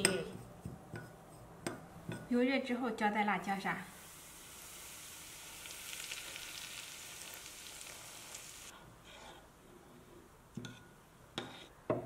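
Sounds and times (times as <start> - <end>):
hot oil sizzling: 3.6 - 8.7.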